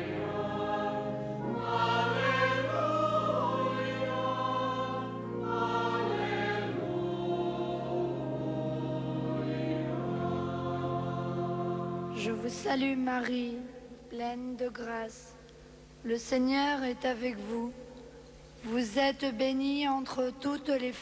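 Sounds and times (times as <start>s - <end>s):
choir singing a hymn: 0.0s - 13.0s.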